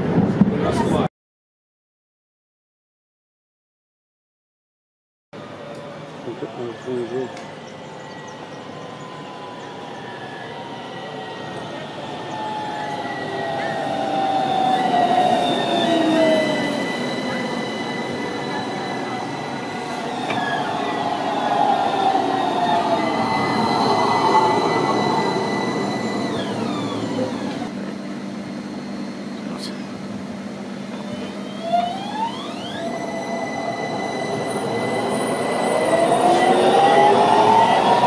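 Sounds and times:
tram electric drive whining: 5.4s - 38.0s
wheel squeal: 12.3s - 27.7s, 30.9s - 37.8s.

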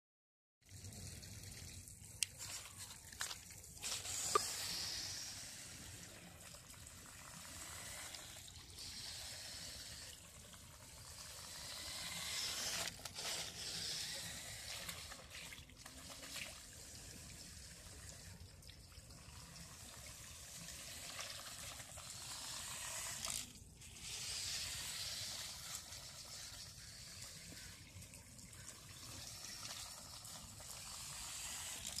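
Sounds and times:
toy car motors whirring: 2.2s - 32.0s.

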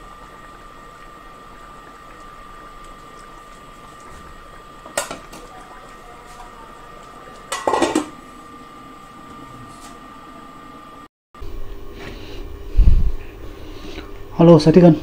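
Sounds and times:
metal lid clattering onto pot: 7.5s - 8.1s.

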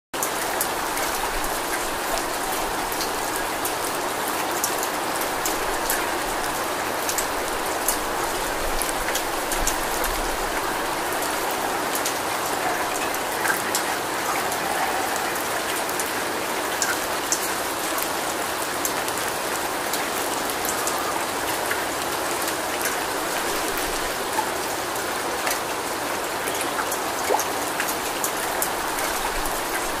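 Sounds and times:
sharp raindrop ticks: 0.2s - 10.6s
steady rain falling: 0.2s - 30.0s.

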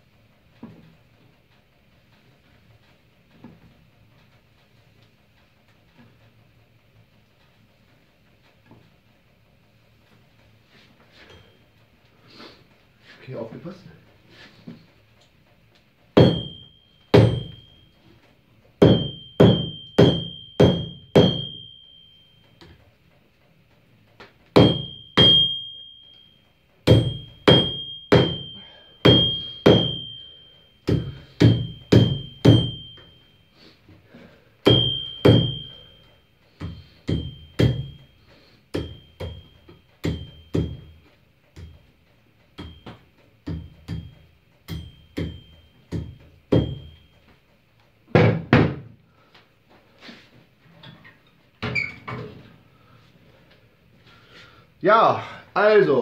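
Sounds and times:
hammer striking hot metal: 16.1s - 18.0s, 18.8s - 22.8s, 24.5s - 33.7s, 34.6s - 41.8s, 42.5s - 47.2s
anvil ringing: 16.1s - 18.1s, 18.8s - 22.8s, 24.5s - 41.8s, 42.5s - 47.2s.

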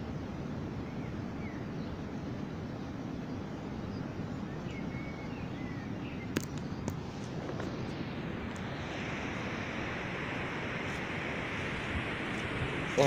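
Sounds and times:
wind rumble on microphone: 0.0s - 13.0s
faint bird chirps: 0.8s - 7.0s.

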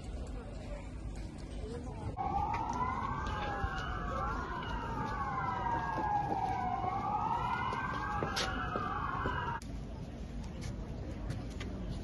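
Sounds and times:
sirens wailing: 2.2s - 9.6s.

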